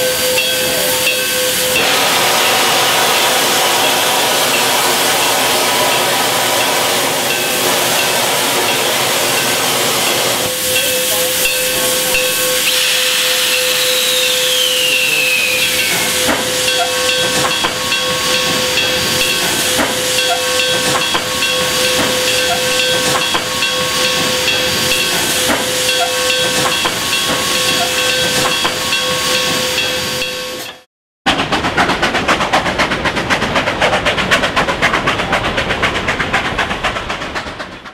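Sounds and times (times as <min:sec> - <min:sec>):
steam locomotive hissing: 0:00.0 - 0:37.9
locomotive chuffing knocks: 0:15.8 - 0:29.7, 0:31.3 - 0:37.9.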